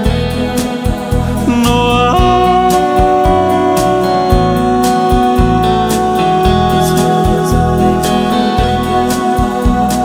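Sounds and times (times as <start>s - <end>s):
low bass notes: 1.2s - 9.1s
sustained guitar tones: 1.4s - 9.2s.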